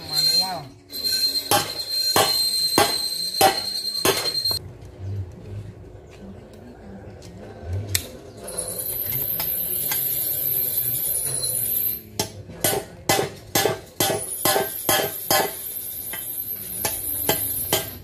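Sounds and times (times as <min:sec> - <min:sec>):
hammer striking steel: 0:01.0 - 0:04.6, 0:12.1 - 0:18.0.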